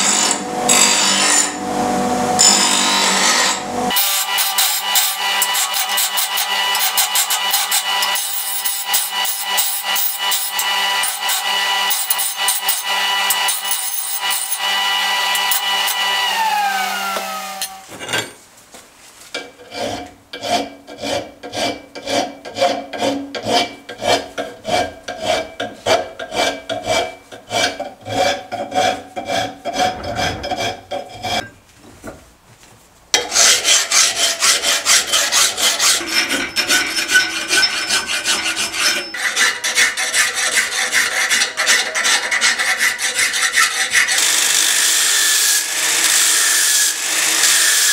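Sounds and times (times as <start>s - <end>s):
grinder grinding steel bar: 0.0s - 1.6s, 2.3s - 18.3s, 19.4s - 31.5s, 33.2s - 47.9s
bench grinder whining: 0.0s - 17.9s
hand file rasping on steel: 2.4s - 16.2s, 19.4s - 31.5s, 33.2s - 44.3s.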